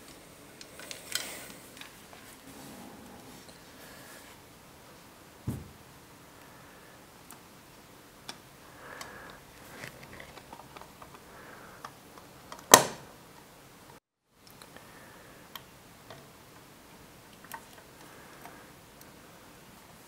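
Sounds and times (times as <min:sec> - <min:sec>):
plastic parts clicking and tapping: 0:08.2 - 0:13.5
sharp loud click: 0:12.7 - 0:13.0.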